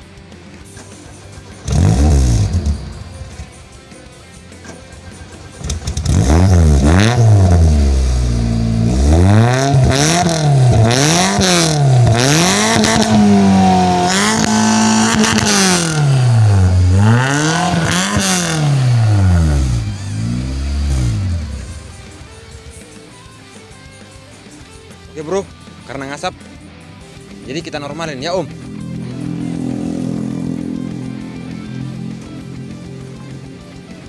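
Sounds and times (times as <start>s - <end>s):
car engine revving: 0.8s - 3.6s, 4.6s - 23.0s, 27.8s - 32.6s.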